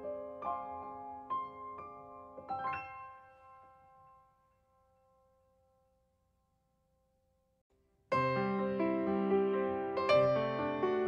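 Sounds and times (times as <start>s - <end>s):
soft piano music: 0.0s - 5.4s, 8.1s - 11.0s.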